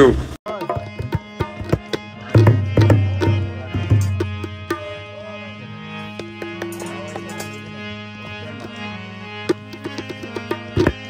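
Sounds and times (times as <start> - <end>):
hand-drum strokes: 0.5 - 5.0, 6.1 - 8.8, 9.4 - 11.0
steady drone: 0.9 - 11.0.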